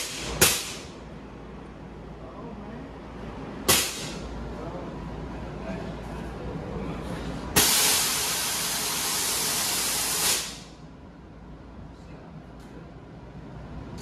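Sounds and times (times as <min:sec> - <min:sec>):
valve venting loud hiss: 0:03.7 - 0:04.2, 0:07.6 - 0:10.8.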